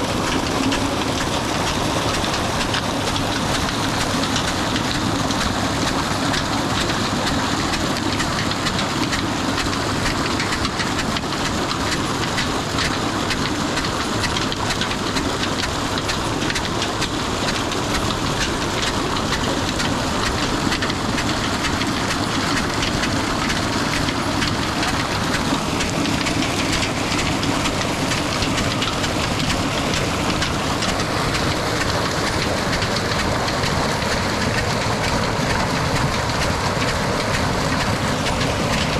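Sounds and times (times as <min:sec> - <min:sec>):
diesel pump engine beating: 0:00.0 - 0:38.9
water gushing from pipe: 0:00.0 - 0:38.9.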